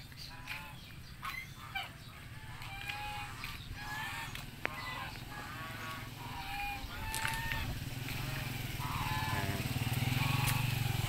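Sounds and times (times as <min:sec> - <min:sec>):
farm fowl calling: 0:00.2 - 0:11.0
small engine running: 0:02.4 - 0:11.0.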